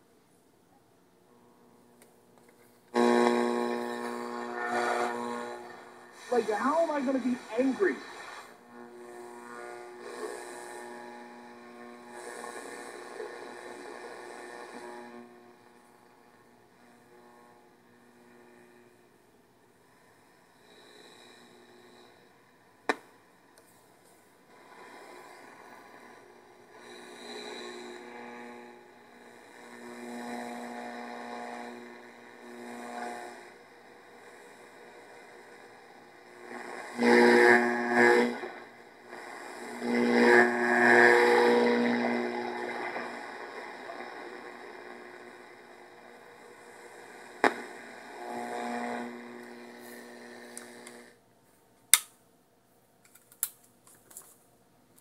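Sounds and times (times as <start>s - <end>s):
radio tuning hiss and hum: 1.4s - 51.2s
whining radio tones: 3.0s - 10.7s, 36.5s - 51.1s.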